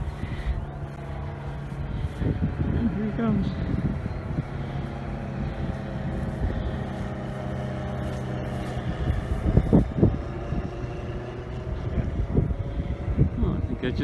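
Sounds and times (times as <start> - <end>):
light plane engine droning: 0.0 - 14.0
loud gusts of noise: 0.0 - 14.0.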